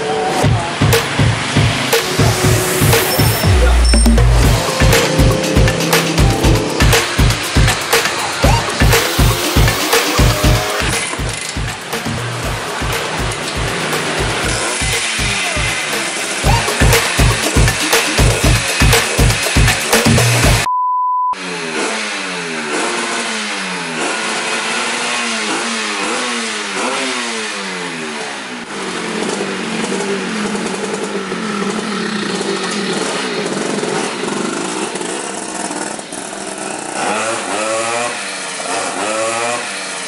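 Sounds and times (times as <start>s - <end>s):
scooter engine revving: 0.0s - 20.7s, 21.4s - 40.0s
beat-driven music: 0.5s - 20.7s
steady beep: 2.0s - 9.4s, 20.6s - 21.4s.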